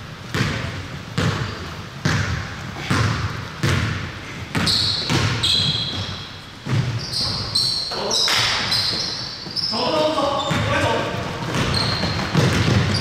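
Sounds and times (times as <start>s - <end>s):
basketball bouncing: 0.3s - 7.5s, 10.4s - 13.0s
sneakers squeaking on court: 1.2s - 13.0s.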